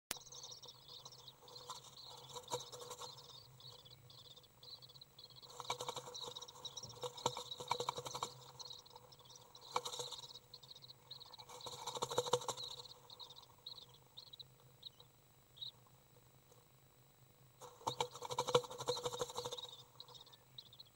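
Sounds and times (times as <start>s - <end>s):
high rapid chittering: 0.1s - 13.9s.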